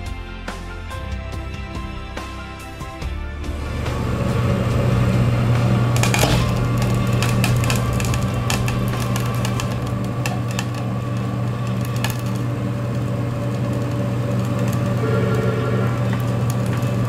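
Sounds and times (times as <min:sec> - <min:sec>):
testing machine humming: 0:03.4 - 0:17.0
panel cracking ticks: 0:05.9 - 0:17.0.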